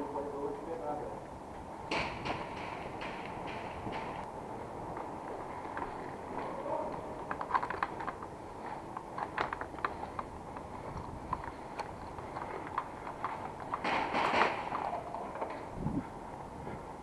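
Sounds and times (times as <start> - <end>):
footsteps on gritty tiled floor: 2.3 - 17.0
clicks and taps of carried gear: 4.9 - 15.7.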